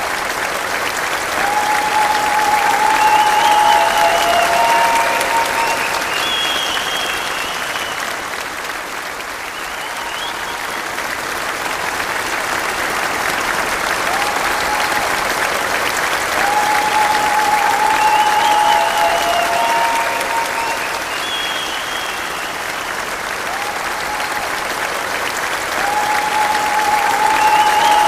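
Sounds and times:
audience applauding: 0.0 - 28.0
high-pitched calls from audience: 1.3 - 8.2, 16.3 - 24.4, 25.7 - 28.0.

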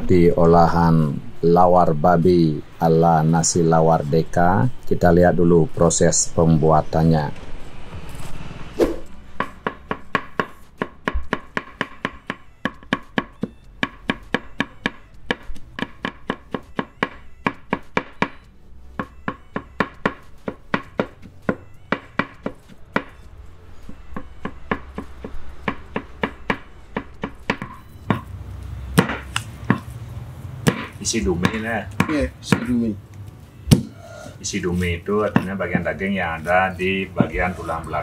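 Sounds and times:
cleaver chopping on wooden block: 9.4 - 18.4, 19.0 - 23.2, 23.9 - 28.3, 29.0 - 29.9, 30.6 - 32.8.

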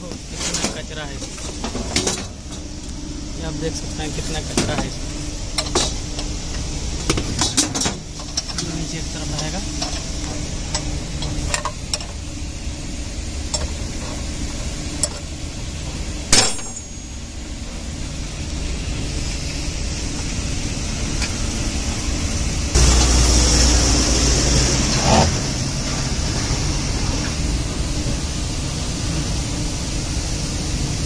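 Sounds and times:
low machine hum: 0.0 - 31.0
sharp knock with ring: 16.4 - 17.0
loud rubbing and scraping: 22.8 - 27.2.

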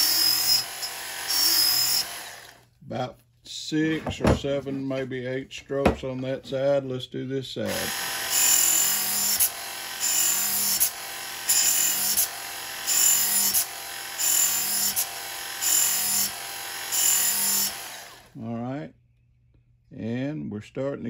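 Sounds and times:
belt sharpener running: 0.0 - 2.7, 7.7 - 18.4.

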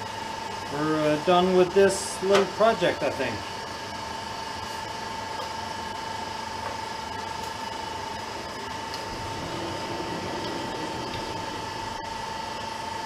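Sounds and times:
metal lathe running: 6.0 - 13.0.

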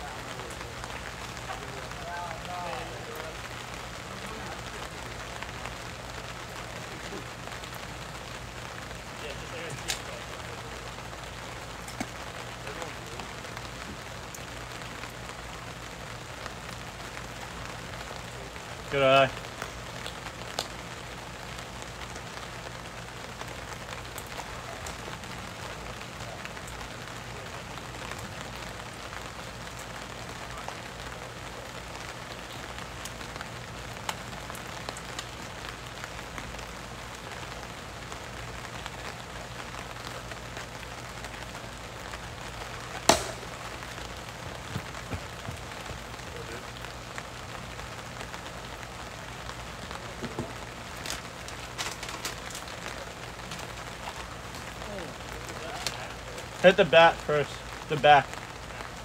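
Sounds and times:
steady outdoor hiss: 0.0 - 59.0
plastic ball impact crack: 43.0 - 43.7.

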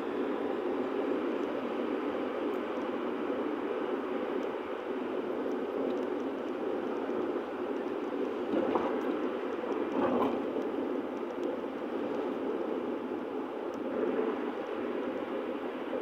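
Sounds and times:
car cabin road noise: 4.4 - 13.0.

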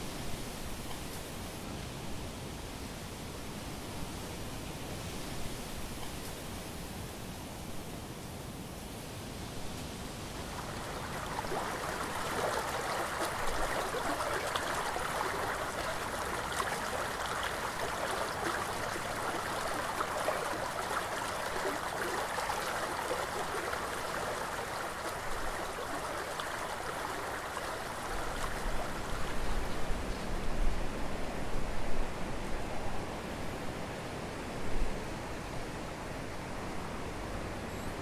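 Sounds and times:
river babbling over stones: 9.9 - 30.1.

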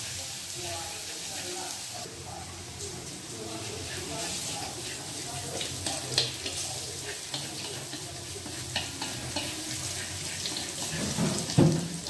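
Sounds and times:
garlic sizzling in a wok: 0.0 - 12.0
chopsticks ticking against pan: 5.6 - 11.0.

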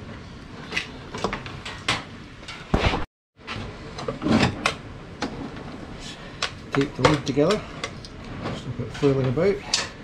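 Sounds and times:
cable handling clicks and rustles: 6.3 - 10.0.

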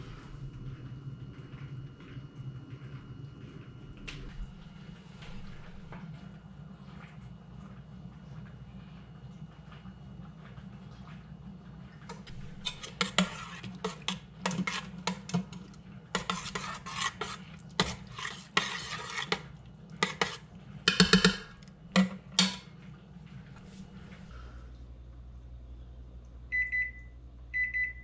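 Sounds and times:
spoon scraping metal pot: 12.2 - 22.6.

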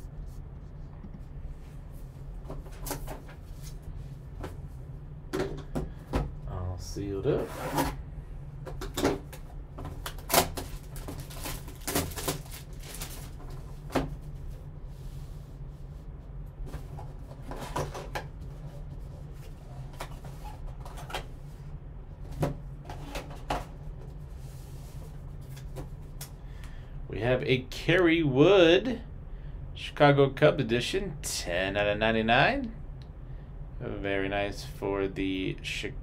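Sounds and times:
steady low hum: 0.0 - 36.0
cardboard clicks and rustles: 9.8 - 14.1.

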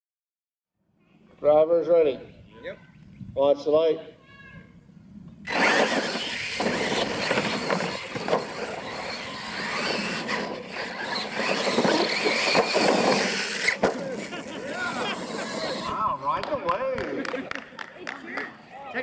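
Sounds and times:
electric motors whining: 5.4 - 16.1
tyres churning dirt: 5.4 - 16.2.

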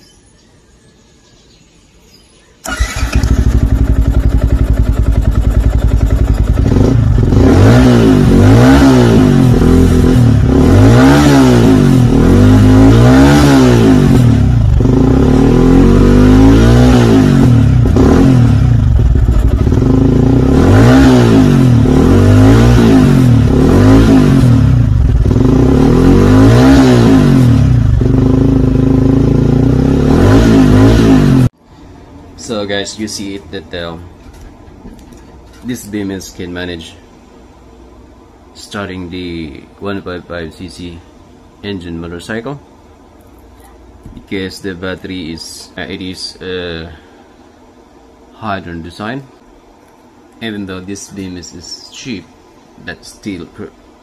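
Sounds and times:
motorcycle engine revving: 2.6 - 31.6.

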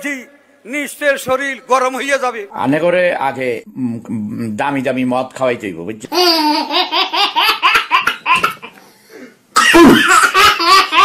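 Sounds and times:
baby laughing: 6.1 - 8.8, 9.7 - 11.0.

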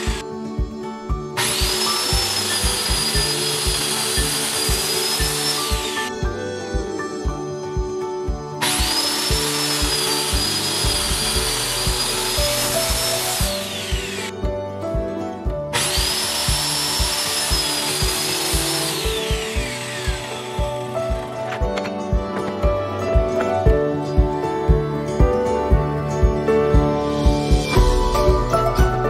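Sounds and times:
circular saw cutting metal: 0.0 - 0.2, 1.4 - 6.2, 8.6 - 14.3, 15.7 - 21.6
background music with beat: 0.0 - 29.0.

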